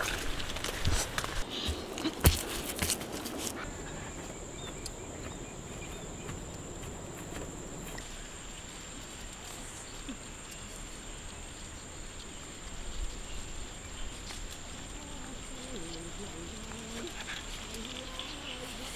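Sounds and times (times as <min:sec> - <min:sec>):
insect droning: 0:00.0 - 0:18.9
outdoor background hiss: 0:00.0 - 0:18.9.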